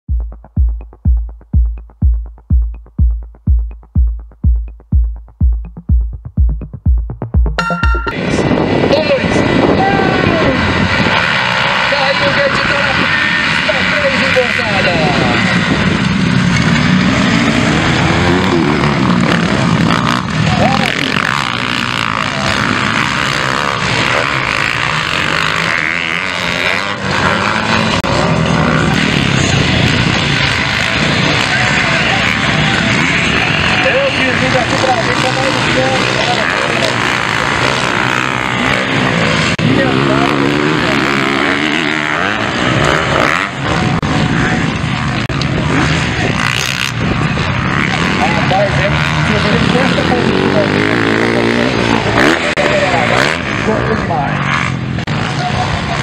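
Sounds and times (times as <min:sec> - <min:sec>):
hi-hat ticks: 0:00.1 - 0:08.0
heavy kick drum: 0:00.1 - 0:08.2
electronic dance music: 0:00.1 - 0:08.5
motocross bikes revving: 0:08.2 - 0:56.0.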